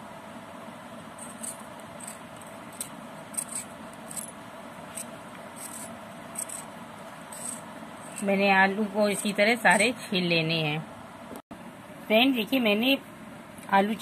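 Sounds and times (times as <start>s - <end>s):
steady low hum: 0.0s - 14.0s
potato peeling scrapes: 5.0s - 8.3s.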